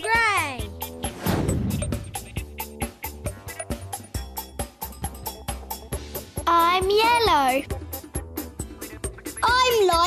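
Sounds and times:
background music with percussive beat: 0.0s - 10.0s
low bass: 0.8s - 2.9s.

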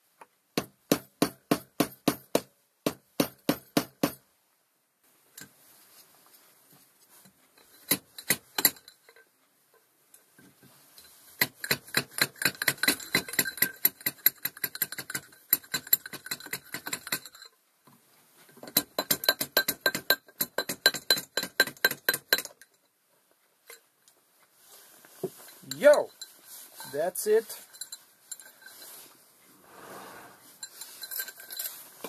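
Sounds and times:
rapid hammer taps on metal: 0.6s - 4.2s, 18.6s - 22.7s.

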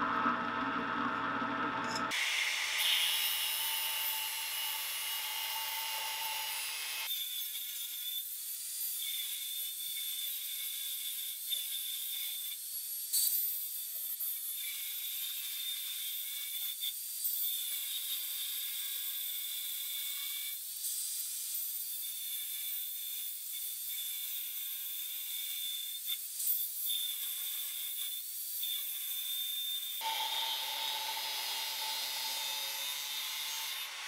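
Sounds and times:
angle grinder motor whine: 0.0s - 8.3s, 26.9s - 34.0s
disc grinding into steel: 30.0s - 34.0s.

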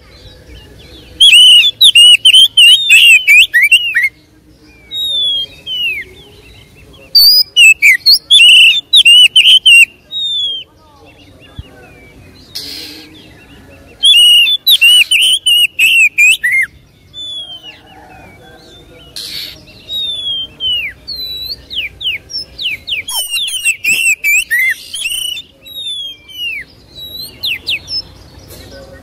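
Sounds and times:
magpie-robin singing: 0.0s - 29.0s.

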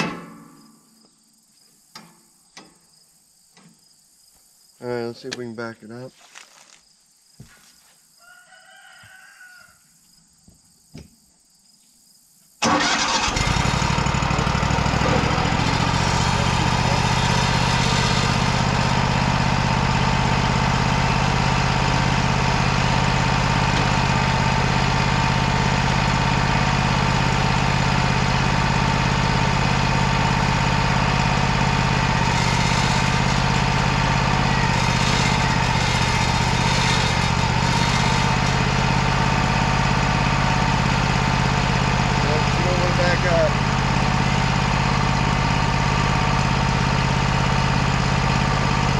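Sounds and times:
sawmill engine starting and running: 12.6s - 48.9s.

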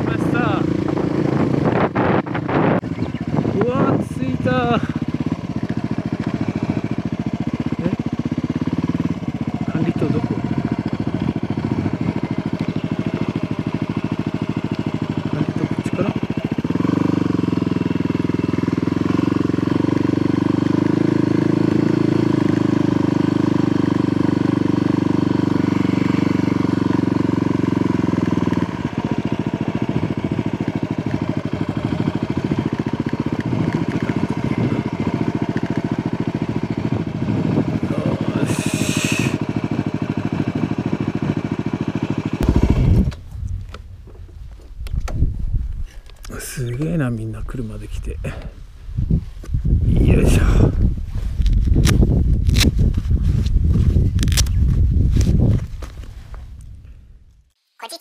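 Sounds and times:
motorcycle engine running: 0.0s - 57.5s.

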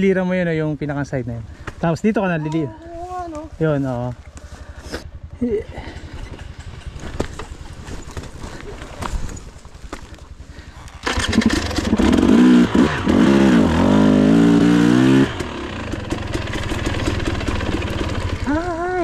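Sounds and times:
dirt bike engine revving: 10.4s - 19.0s.

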